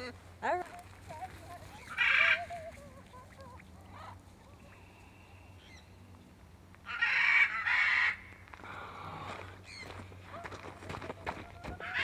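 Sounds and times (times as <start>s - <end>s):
macaw squawking: 1.8s - 4.2s, 11.7s - 12.0s.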